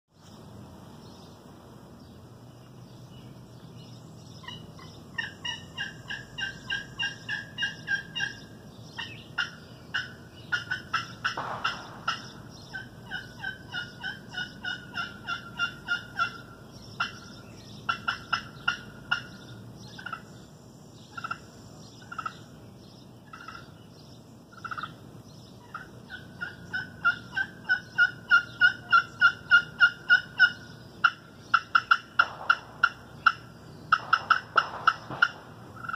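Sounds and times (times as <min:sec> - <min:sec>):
turkey call yelping notes: 0:04.4 - 0:19.4, 0:20.0 - 0:20.3, 0:21.1 - 0:21.4, 0:23.3 - 0:23.7, 0:25.6 - 0:35.9.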